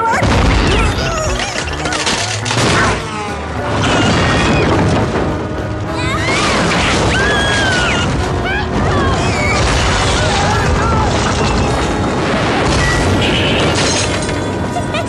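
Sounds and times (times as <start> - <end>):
music: 0.1 - 11.2.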